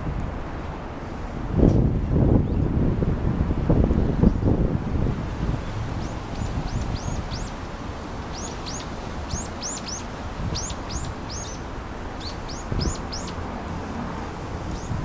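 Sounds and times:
low wind rumble: 0:00.0 - 0:15.0
songbirds chirping: 0:05.6 - 0:15.0.

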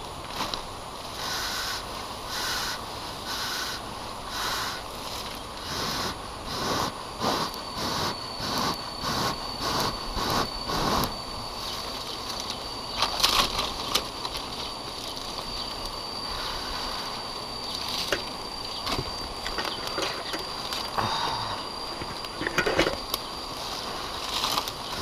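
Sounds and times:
insect whine: 0:00.0 - 0:25.0
smoker hissing puffs: 0:00.3 - 0:11.6.

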